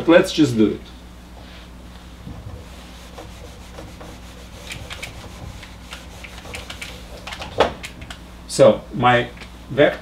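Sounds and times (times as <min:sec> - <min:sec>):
eraser rubbing on whiteboard: 0:02.5 - 0:07.4.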